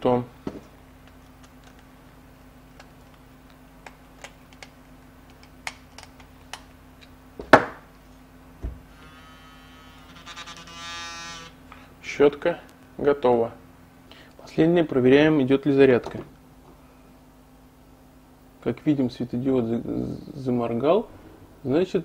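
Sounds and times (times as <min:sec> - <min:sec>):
toothbrush motor buzzing: 0:08.9 - 0:11.6.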